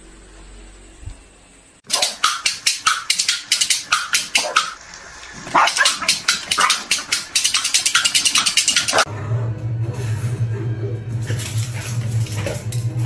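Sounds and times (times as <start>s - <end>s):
dog yapping rapidly: 1.9s - 9.1s.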